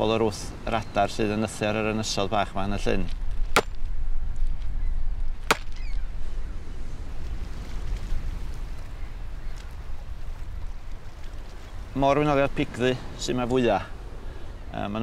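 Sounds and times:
fence post being hammered: 3.5 - 3.8, 5.4 - 5.8.

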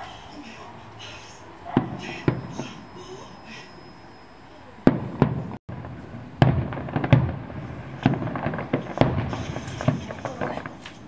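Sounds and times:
firework shells bursting: 1.8 - 3.0, 4.8 - 11.0.

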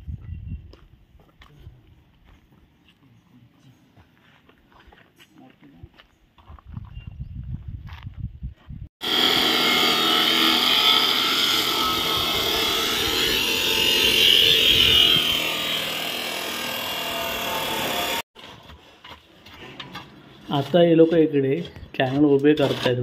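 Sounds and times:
chop saw cutting steel: 9.0 - 18.3.

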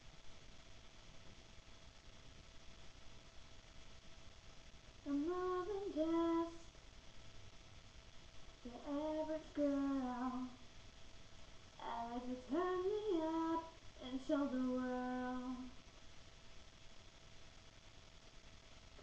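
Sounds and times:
woman singing unaccompanied: 5.0 - 6.8, 8.6 - 10.7, 11.8 - 15.8.

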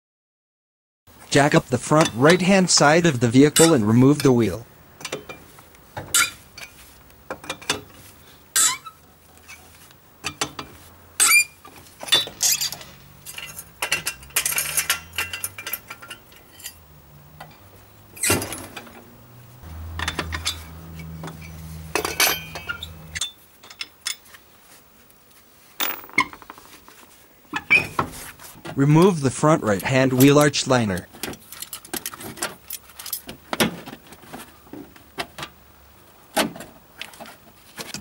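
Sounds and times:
wheel brace clinking on nuts: 5.0 - 19.1, 19.9 - 24.3, 25.8 - 28.1
trolley jack being worked: 10.3 - 16.8.

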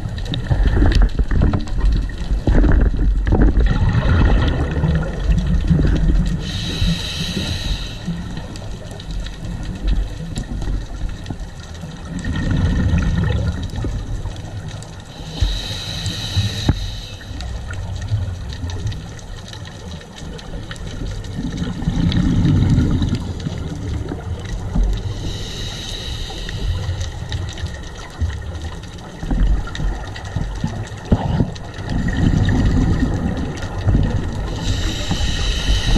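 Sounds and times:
exhaled bubbles rumbling underwater: 0.0 - 35.9
regulator hissing on inhale: 6.3 - 8.8, 15.0 - 17.6, 25.0 - 27.7, 34.4 - 35.9.

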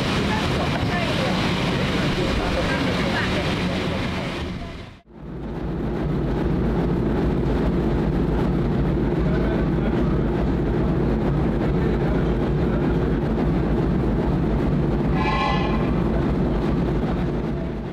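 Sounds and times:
steam locomotive rushing steam: 0.0 - 5.0
short train whistle: 15.1 - 16.0.

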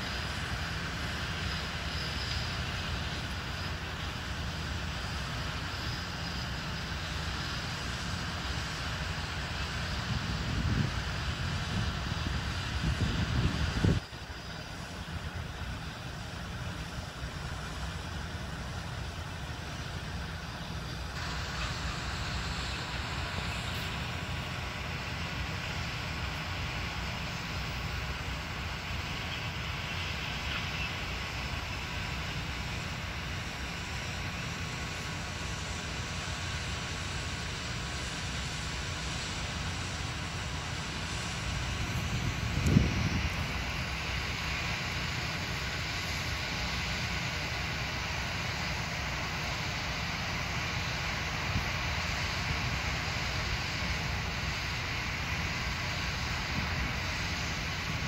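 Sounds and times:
distant tractor running: 0.0 - 58.0
wind rumble on microphone: 9.9 - 14.2, 41.3 - 44.0.

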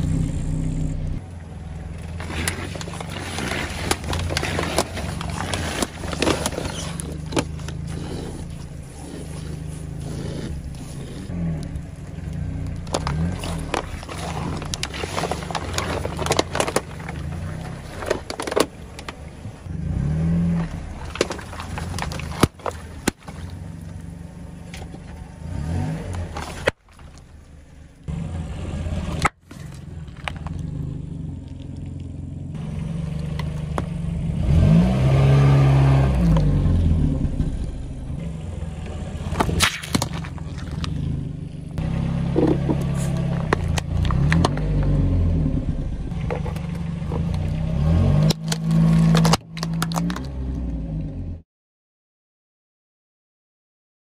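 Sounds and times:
car engine revving: 0.0 - 51.4
plastic items crushed under tyre: 2.0 - 8.0, 12.6 - 19.3, 20.7 - 23.8, 26.3 - 27.4, 29.2 - 30.6, 39.2 - 41.1, 42.4 - 45.0, 46.1 - 50.4.

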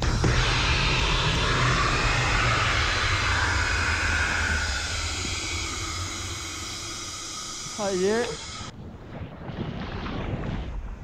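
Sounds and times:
snow sliding with rumble and hiss: 0.0 - 8.8.

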